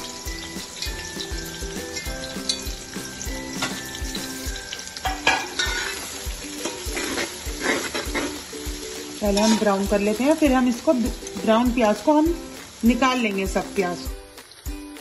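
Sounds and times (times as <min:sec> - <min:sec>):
background music with steady beat: 0:00.0 - 0:15.0
onions sizzling in oil: 0:00.0 - 0:15.0
spatula scraping a pot: 0:05.3 - 0:08.5.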